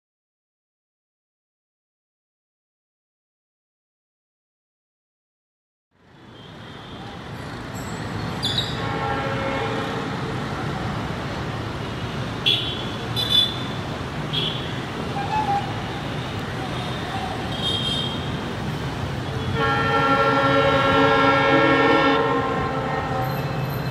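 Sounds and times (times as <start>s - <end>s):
road traffic hum: 5.9s - 23.9s.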